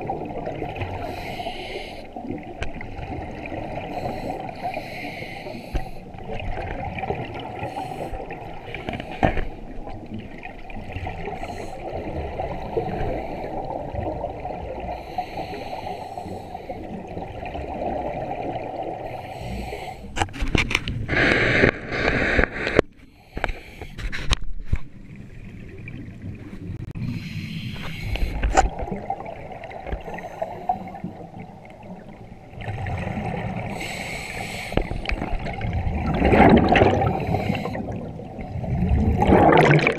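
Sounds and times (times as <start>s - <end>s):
exhaled bubbles rushing: 0.0s - 1.2s, 2.2s - 4.5s, 6.1s - 15.0s, 16.8s - 19.0s, 28.3s - 33.8s, 34.8s - 39.9s
regulator breathing underwater: 0.9s - 2.2s, 3.8s - 6.2s, 7.6s - 9.7s, 11.3s - 13.8s, 14.8s - 17.0s, 18.9s - 20.2s, 21.1s - 24.3s, 27.0s - 28.7s, 29.8s - 31.2s, 33.5s - 38.2s.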